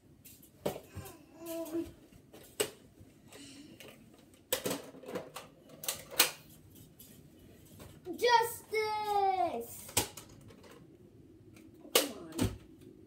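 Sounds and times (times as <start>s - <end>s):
plastic toy clicks and knocks: 3.8s - 6.4s, 9.9s - 10.8s.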